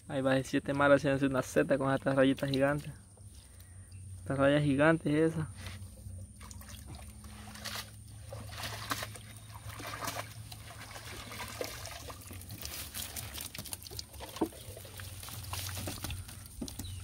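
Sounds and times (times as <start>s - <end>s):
sharp drips and knocks: 1.9s - 3.0s, 6.1s - 17.0s
water pouring from a net: 6.4s - 16.8s.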